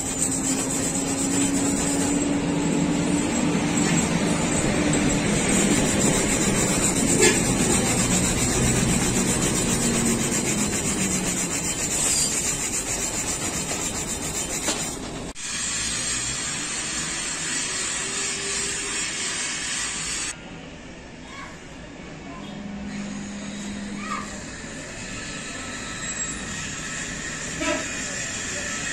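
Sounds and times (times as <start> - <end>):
wire brush scrubbing metal: 0.0 - 19.4.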